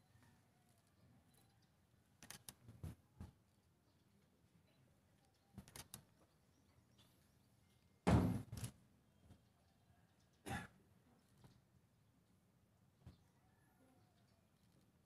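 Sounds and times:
small clicks: 2.2 - 2.6, 5.6 - 6.1
heavy thump: 8.1 - 8.4.

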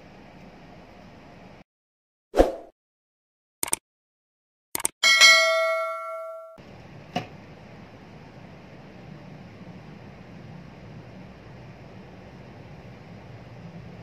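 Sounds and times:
bell-like notification ding: 5.0 - 6.6.

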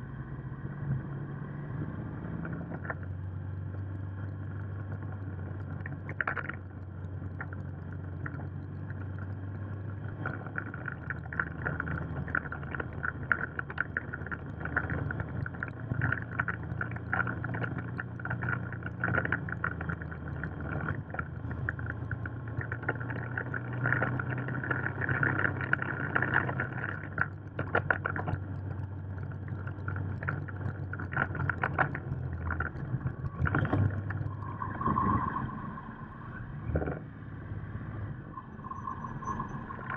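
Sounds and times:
motorcycle engine running: 2.1 - 34.8
wind noise on microphone: 13.8 - 37.0.

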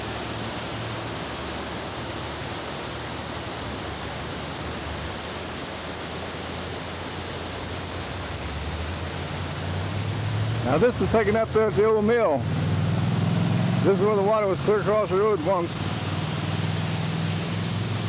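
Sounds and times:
floodwater rushing in river: 0.0 - 18.0.

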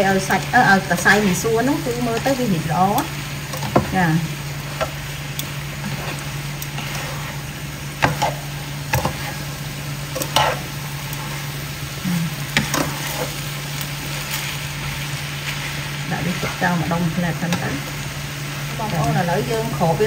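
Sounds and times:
noodles sizzling in a wok: 0.0 - 20.0.

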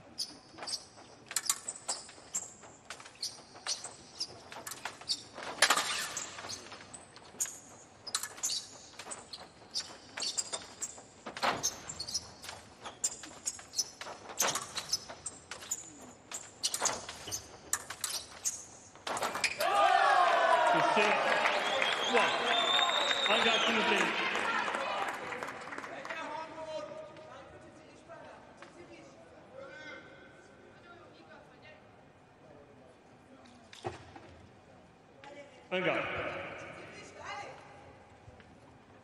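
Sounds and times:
fencing blades clashing: 0.0 - 19.8
fencers' footwork: 0.0 - 20.1.

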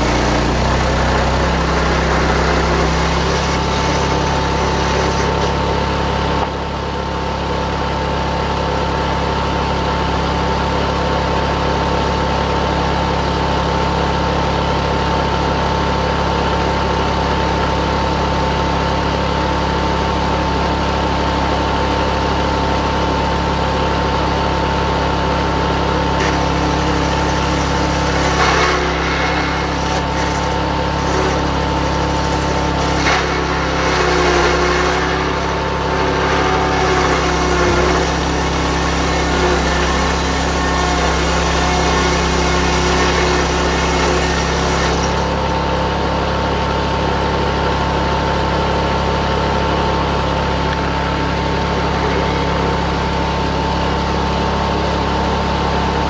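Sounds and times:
sawing machine engine running: 0.0 - 56.0.

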